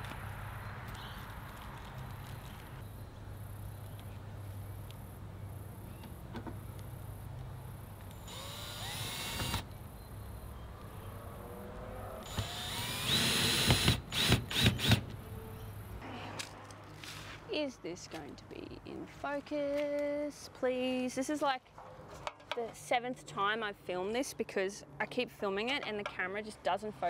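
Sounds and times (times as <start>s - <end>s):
cordless drill driving screws: 8.2s - 9.6s, 12.3s - 15.0s.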